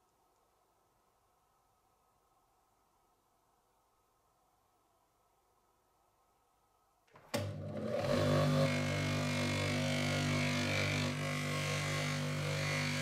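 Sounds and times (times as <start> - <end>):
bench grinder running: 7.4 - 13.0.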